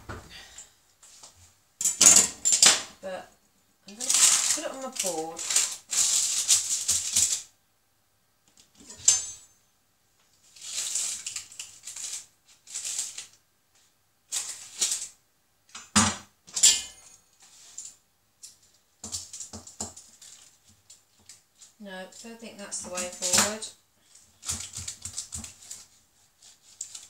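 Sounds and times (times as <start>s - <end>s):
baking paper crinkling: 3.8s - 7.5s, 10.2s - 15.2s, 17.4s - 27.0s.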